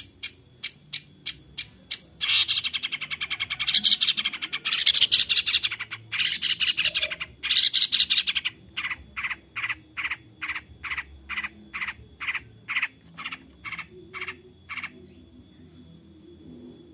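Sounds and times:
bird scratchy chattering: 0:02.2 - 0:14.9.

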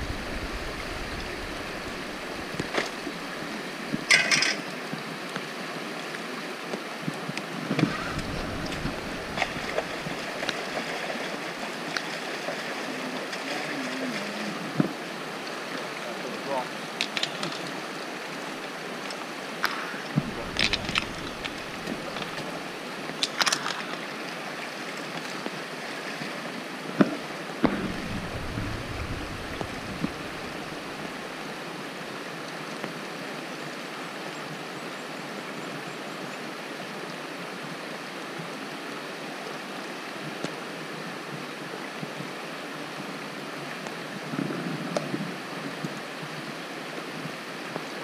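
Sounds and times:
flowing creek: 0:00.0 - 0:48.0
water sloshing and splashing: 0:07.8 - 0:15.1, 0:19.1 - 0:24.6.

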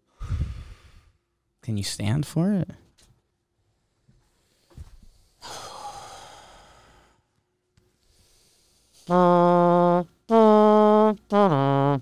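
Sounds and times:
breathy rush of air: 0:00.0 - 0:01.3, 0:04.7 - 0:07.3
person buzzing lips like trumpet: 0:09.0 - 0:12.0.

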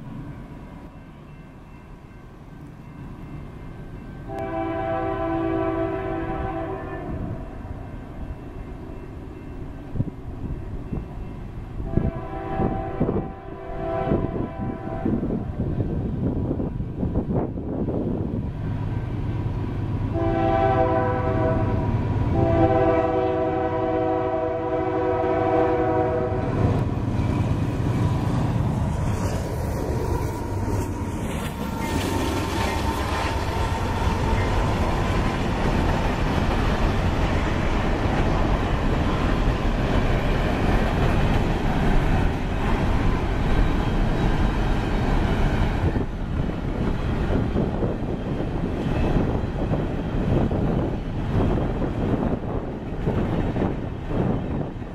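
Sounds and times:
empty hopper cars rattling on rails: 0:00.0 - 0:54.9
locomotive air horn blasts: 0:04.3 - 0:07.5, 0:11.8 - 0:15.5, 0:20.1 - 0:26.8
locomotive engine rumble: 0:15.3 - 0:54.9.

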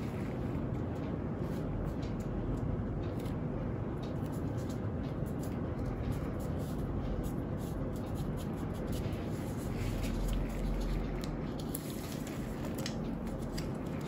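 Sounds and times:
low background noise: 0:00.0 - 0:14.0
tape rustling and crinkling: 0:09.0 - 0:14.0.

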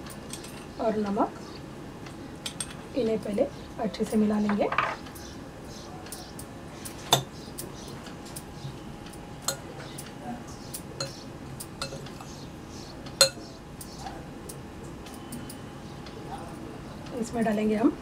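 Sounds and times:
metal spoon clinking in glass bowl: 0:11.8 - 0:12.3, 0:13.2 - 0:13.5
spoon knocking on glass: 0:11.8 - 0:12.3.

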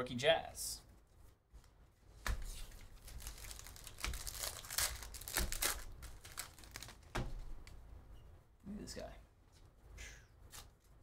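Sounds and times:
foil wrapper tearing and crinkling: 0:03.0 - 0:07.0.

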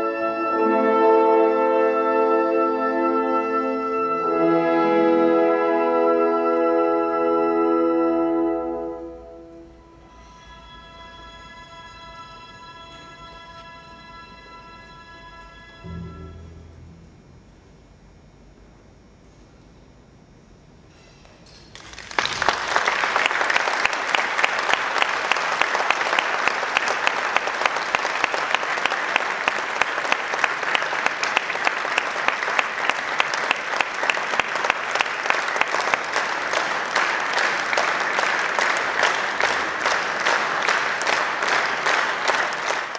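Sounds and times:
audience applauding: 0:21.6 - 0:42.9.

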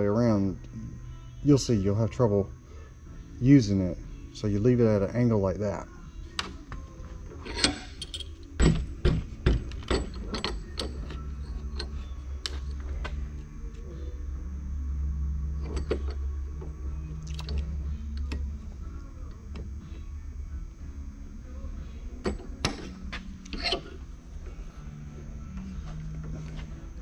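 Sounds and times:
low steady hum: 0:00.0 - 0:27.0
metal knocks and clinks of vise: 0:07.4 - 0:13.0, 0:15.6 - 0:16.2.

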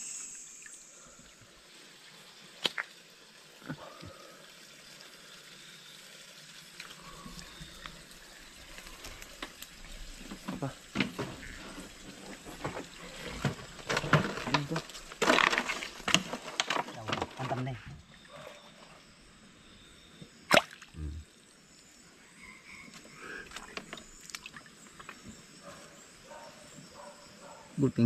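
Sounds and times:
water splashing and trickling: 0:00.0 - 0:18.8, 0:20.4 - 0:21.1, 0:23.1 - 0:25.6.

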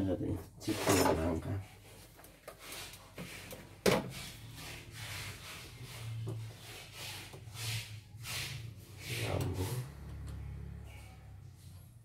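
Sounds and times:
parts rubbing on wooden workbench: 0:00.6 - 0:10.2.

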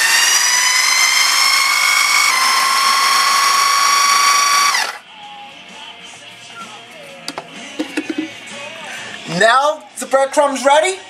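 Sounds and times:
food processor motor whining: 0:00.0 - 0:05.0.

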